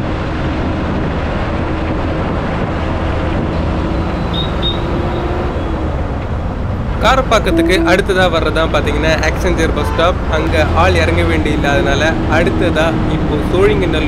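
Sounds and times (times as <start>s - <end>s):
bus engine and road noise: 0.0s - 14.0s.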